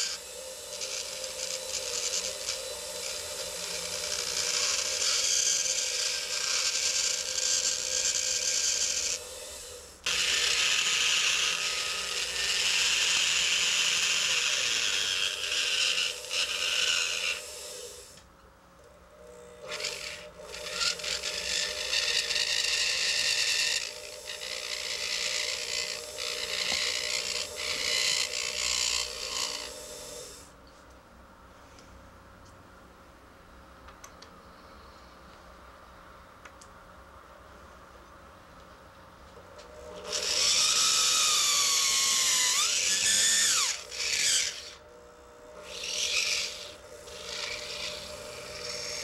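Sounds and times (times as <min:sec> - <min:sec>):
rotary tool grinding plastic: 0:00.0 - 0:18.0, 0:19.6 - 0:30.4, 0:39.9 - 0:44.8, 0:45.6 - 0:49.0
motor hum: 0:00.0 - 0:18.2, 0:18.8 - 0:30.5, 0:39.4 - 0:49.0.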